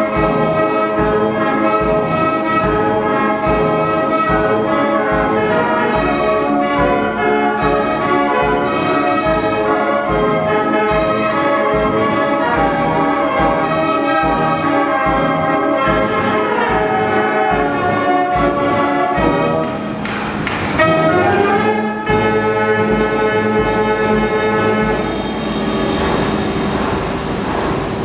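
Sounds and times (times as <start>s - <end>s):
band organ pipes melody: 0.0s - 28.0s
steady drum beat: 9.3s - 21.0s, 22.1s - 28.0s
cymbal crash: 22.2s - 28.0s.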